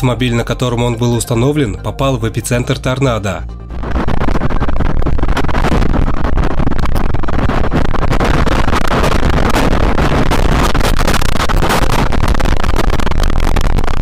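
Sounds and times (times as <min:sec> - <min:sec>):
loud tornado wind: 0:03.7 - 0:14.0.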